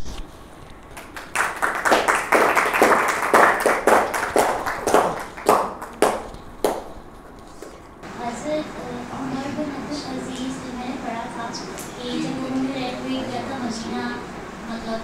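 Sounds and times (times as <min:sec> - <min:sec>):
audience applauding: 0:00.9 - 0:06.9.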